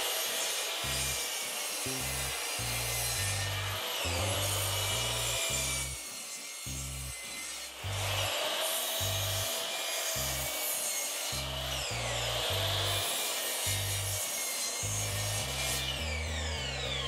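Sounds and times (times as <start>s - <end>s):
miter saw cutting wood: 0.0s - 17.0s.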